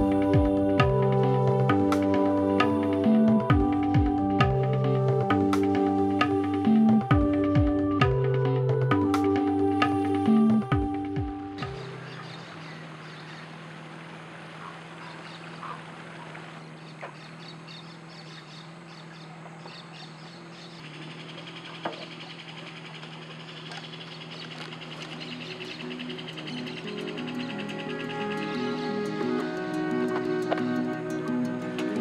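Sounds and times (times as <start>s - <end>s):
bird calls: 0.0s - 32.0s
low hum: 0.0s - 32.0s
insects and frogs chorus: 11.6s - 29.2s.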